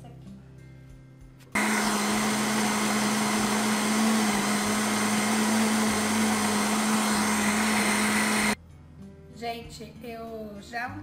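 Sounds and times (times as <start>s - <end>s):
blender motor whining: 1.6s - 8.6s.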